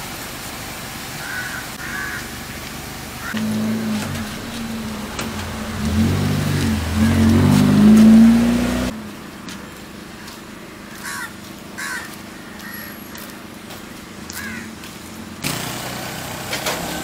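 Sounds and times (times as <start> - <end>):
background traffic: 0.0 - 17.0
harsh crow-like bird calls: 1.2 - 2.4, 3.2 - 3.5, 10.2 - 14.8
vehicle engine accelerating: 3.2 - 17.0.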